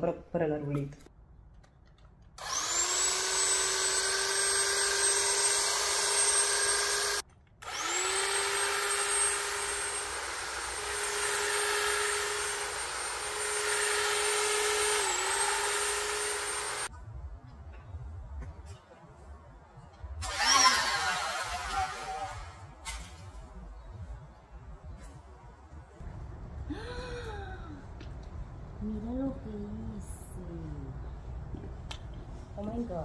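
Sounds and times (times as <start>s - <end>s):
electric hedge trimmer whining: 2.4s - 16.9s, 20.2s - 22.5s.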